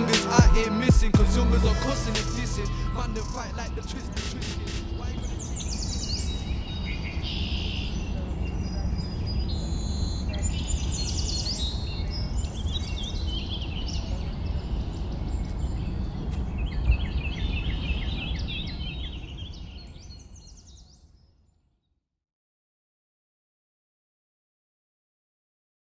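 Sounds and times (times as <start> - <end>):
steady low rumble: 0.0 - 6.9
small birds chirping: 2.3 - 21.9.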